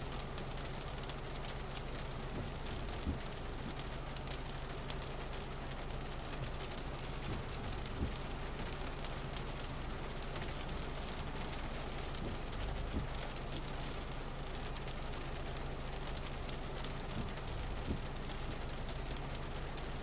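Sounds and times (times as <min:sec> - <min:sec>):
low steady hum: 0:00.0 - 0:20.0
rain on car windscreen and roof: 0:00.0 - 0:20.0.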